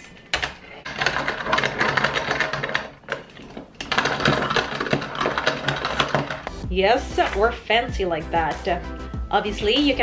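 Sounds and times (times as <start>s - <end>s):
pepper grinder crunching: 3.8s - 6.7s.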